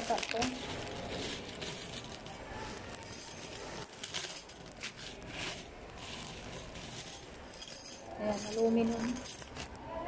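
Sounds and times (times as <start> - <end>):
plastic bag crinkling: 0.0 - 7.5
metal fittings clinking: 0.0 - 9.8.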